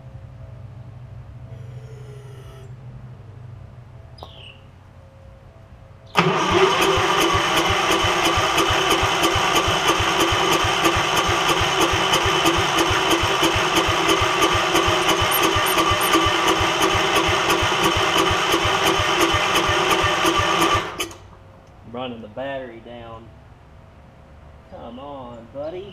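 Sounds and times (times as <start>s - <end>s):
engine cranking without starting: 6.2s - 21.3s.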